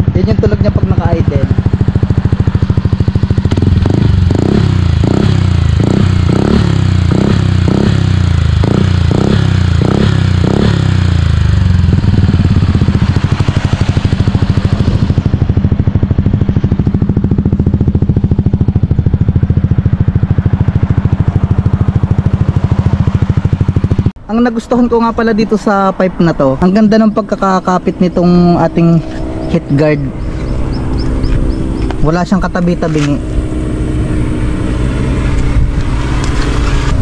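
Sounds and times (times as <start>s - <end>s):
scooter engine idling: 0.0s - 24.2s, 26.6s - 37.0s.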